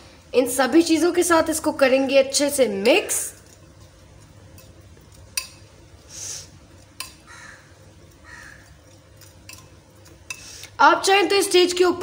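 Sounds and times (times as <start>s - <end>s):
spoon stirring in glass bowl: 2.8s - 5.8s, 6.6s - 10.7s
spoon clicking against glass: 5.3s - 5.6s, 7.0s - 7.2s, 9.2s - 10.4s.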